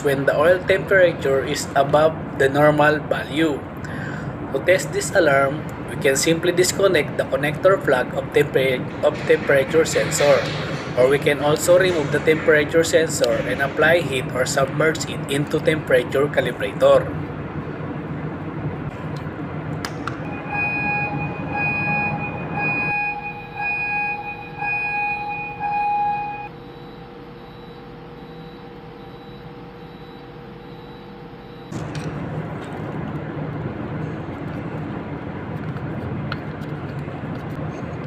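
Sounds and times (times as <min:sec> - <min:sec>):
steering gear machinery din: 0:04.8 - 0:17.1
alarm beeping: 0:08.8 - 0:16.0, 0:20.1 - 0:32.3.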